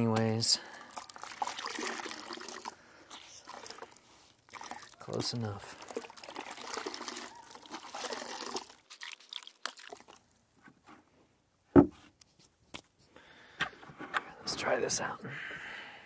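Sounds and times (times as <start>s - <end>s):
water sloshing in a bucket: 0.0s - 10.4s
thump: 11.8s - 12.0s.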